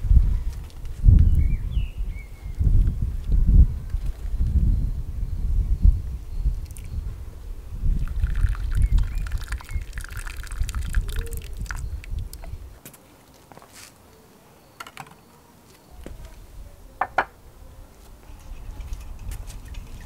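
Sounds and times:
water pouring and splashing: 8.0s - 12.4s
tray knocking on stone: 17.0s - 17.3s.

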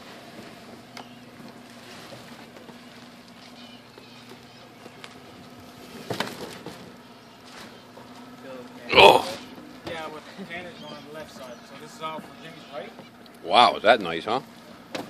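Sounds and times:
light knocks on boat: 6.0s - 6.9s.

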